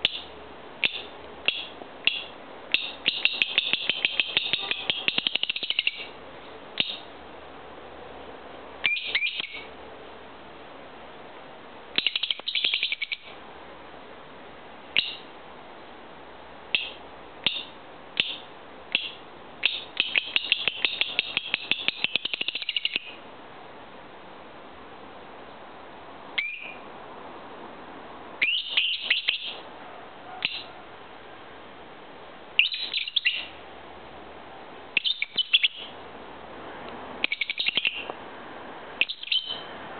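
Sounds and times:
bird chirping: 0.0s - 6.1s, 6.8s - 7.1s, 8.8s - 9.7s, 12.0s - 13.3s, 15.0s - 15.3s, 16.7s - 23.2s, 26.4s - 26.8s, 28.4s - 29.6s, 30.4s - 30.7s, 32.6s - 33.6s, 35.0s - 36.0s, 37.2s - 38.1s, 39.0s - 39.7s.

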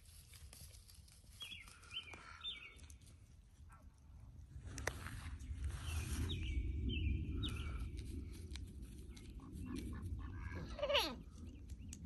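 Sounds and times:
small birds chirping: 1.3s - 3.2s, 5.2s - 8.3s, 9.0s - 12.0s
low rumble: 3.6s - 12.0s.

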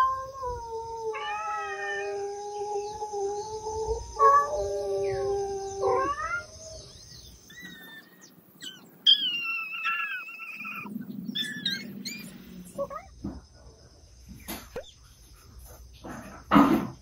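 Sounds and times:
cats crying high-pitched: 0.0s - 6.9s, 7.5s - 13.1s.

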